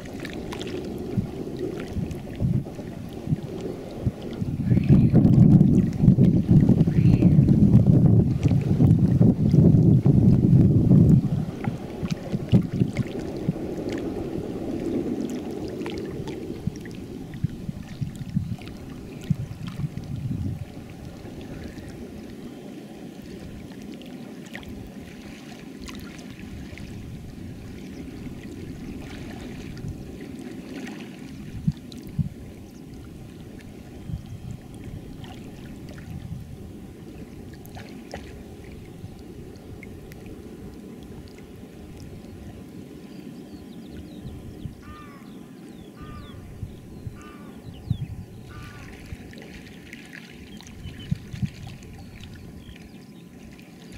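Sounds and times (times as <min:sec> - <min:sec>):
lapping gurgling water: 0:00.0 - 0:53.9
wind rumbling on microphone: 0:00.0 - 0:53.9.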